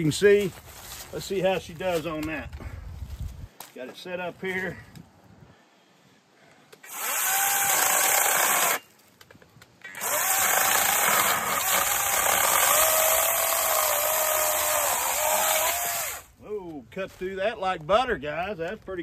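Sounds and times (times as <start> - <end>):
electric chainsaw cutting log: 6.8 - 8.8, 10.0 - 16.3.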